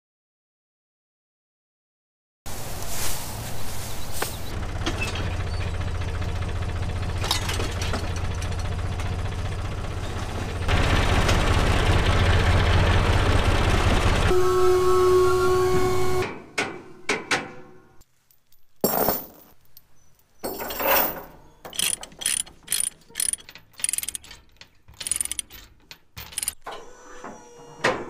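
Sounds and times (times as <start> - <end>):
chain rattling: 18.4 - 26.6
ratchet clicks: 21.7 - 26.6.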